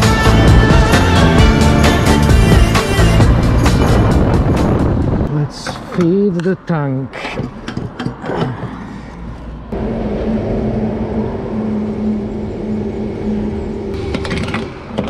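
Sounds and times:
fuel pump motor humming: 0:07.4 - 0:15.0.

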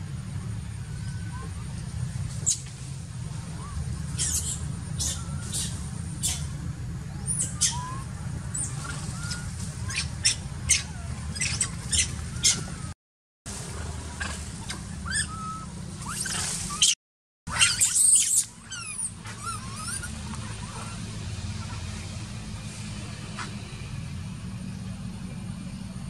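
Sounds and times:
animal squeaks and squawks: 0:03.6 - 0:06.6, 0:07.2 - 0:12.9, 0:14.2 - 0:21.9.

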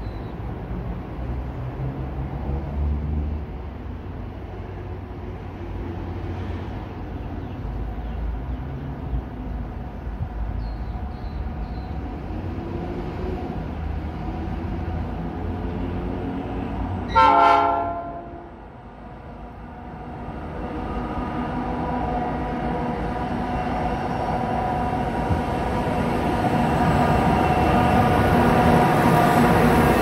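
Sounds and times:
locomotive horn blast: 0:17.1 - 0:18.6.

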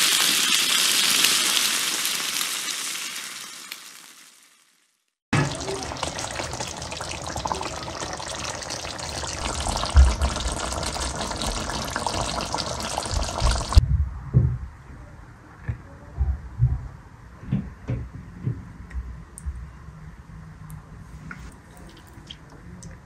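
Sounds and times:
sauce bubbling in a pan: 0:05.4 - 0:13.8
dull low thumps: 0:09.4 - 0:10.8, 0:13.1 - 0:14.9, 0:16.2 - 0:19.6.

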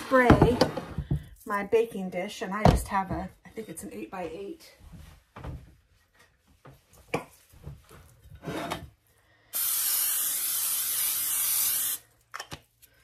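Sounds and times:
aerosol spray hissing: 0:09.5 - 0:12.0.

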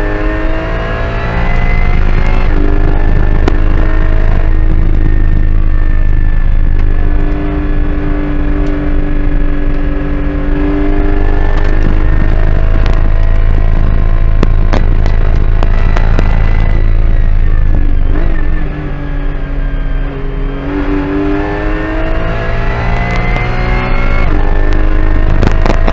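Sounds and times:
car engine at high revs: 0:00.0 - 0:25.9
sharp clicks and rattles: 0:10.9 - 0:18.4, 0:23.0 - 0:25.9.

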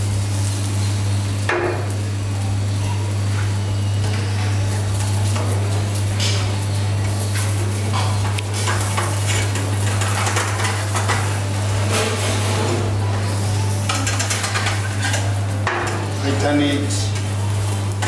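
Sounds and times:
metal utensils clattering on pots: 0:07.4 - 0:12.9, 0:13.8 - 0:17.2.

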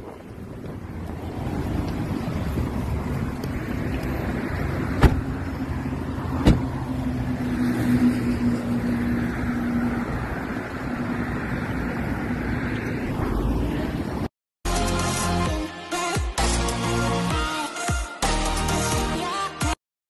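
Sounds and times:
road traffic going by: 0:00.0 - 0:14.3.

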